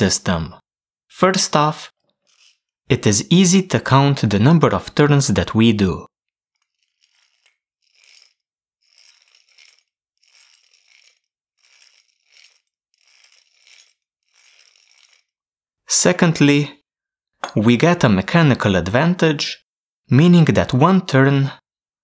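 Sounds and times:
hand drill gears turning: 0:01.9 - 0:02.9, 0:06.4 - 0:15.6.

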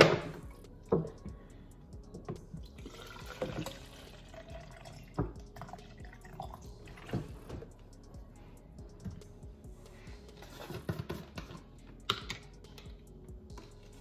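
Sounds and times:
water pouring into plastic bottle: 0:02.8 - 0:05.0.

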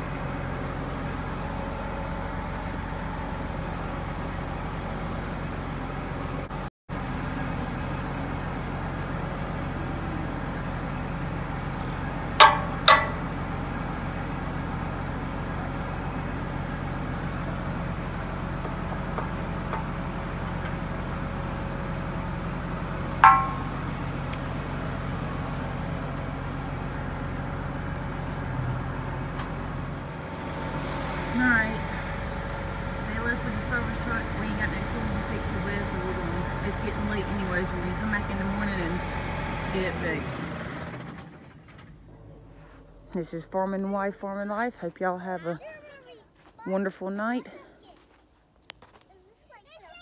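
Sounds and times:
tractor engine idling: 0:00.0 - 0:46.5
metal-on-metal clanks: 0:12.4 - 0:13.3, 0:23.2 - 0:23.8.

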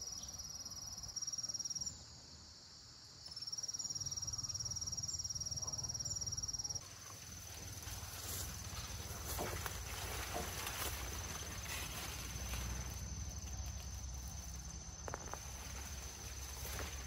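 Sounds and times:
high insect trill: 0:00.0 - 0:17.0
corn leaves rustling: 0:06.8 - 0:17.0.

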